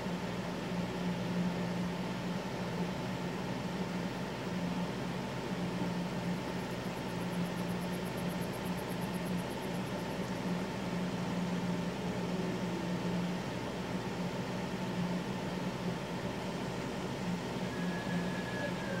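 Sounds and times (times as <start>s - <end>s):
faint thin high tone: 17.6s - 19.0s.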